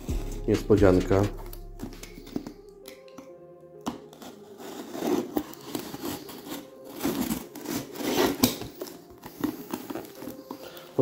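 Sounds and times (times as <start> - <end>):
packaging crinkling and tearing: 3.8 - 11.0.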